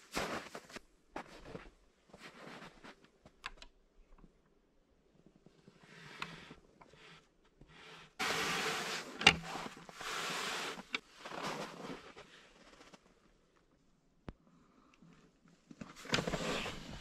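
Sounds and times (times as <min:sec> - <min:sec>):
boots in snow: 0:00.0 - 0:02.9, 0:08.2 - 0:12.4
clothing rustling: 0:08.2 - 0:13.2, 0:15.8 - 0:17.0.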